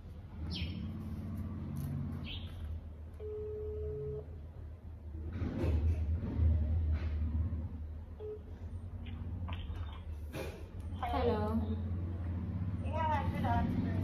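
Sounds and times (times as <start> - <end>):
bird chirping: 0.4 - 1.1, 2.2 - 2.8
phone ringback tone: 3.2 - 4.3.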